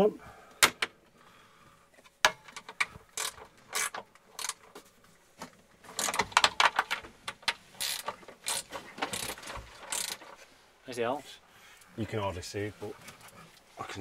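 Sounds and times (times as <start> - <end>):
hand tools clicking and rattling: 2.2 - 4.8, 5.8 - 10.4.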